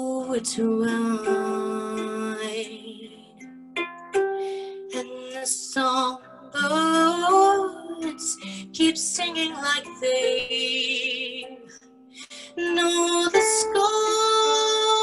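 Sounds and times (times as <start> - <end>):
harp playing: 0.0 - 15.0.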